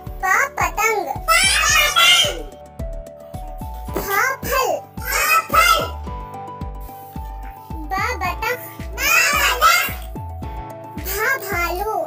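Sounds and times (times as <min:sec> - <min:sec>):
children's music with steady beat: 0:00.0 - 0:12.0
high voice: 0:00.2 - 0:02.5, 0:04.0 - 0:06.1, 0:07.6 - 0:10.2, 0:11.0 - 0:12.0.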